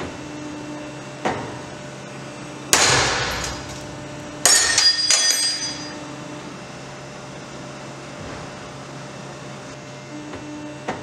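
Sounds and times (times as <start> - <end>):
steady low hum: 0.3 - 9.8
metal pieces clattering: 3.2 - 6.0.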